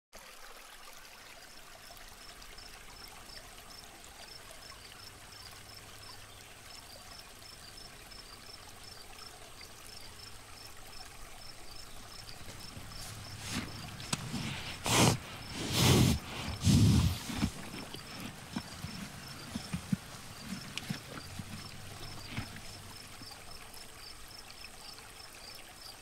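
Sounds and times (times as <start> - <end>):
water trickling: 0.2 - 26.0
rushes of noise: 12.5 - 22.9.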